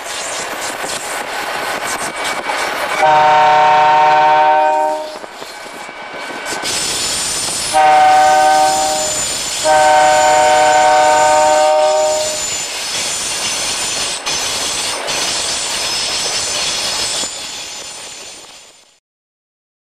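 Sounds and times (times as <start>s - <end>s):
train rolling noise: 0.0s - 19.0s
locomotive air horn blasts: 3.0s - 5.2s, 7.7s - 12.4s.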